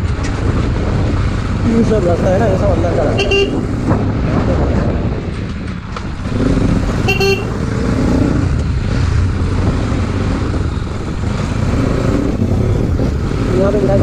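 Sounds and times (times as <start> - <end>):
road and wind noise: 0.0 - 14.0
motorcycle engine running: 3.1 - 14.0
horn toot: 3.2 - 3.7, 7.0 - 7.6.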